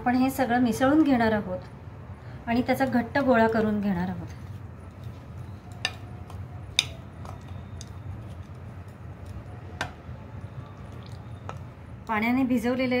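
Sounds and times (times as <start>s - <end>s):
steel spoon clicking against bowl: 6.7s - 7.0s.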